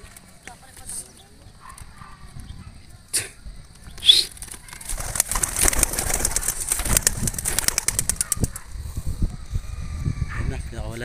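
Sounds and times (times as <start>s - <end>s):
pigeon wings flapping: 4.0s - 8.7s.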